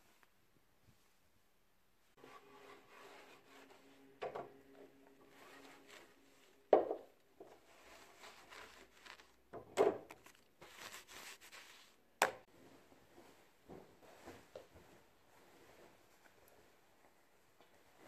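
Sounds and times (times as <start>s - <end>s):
cloth rubbing over wood: 5.2s - 6.7s, 7.5s - 9.4s, 10.2s - 12.0s.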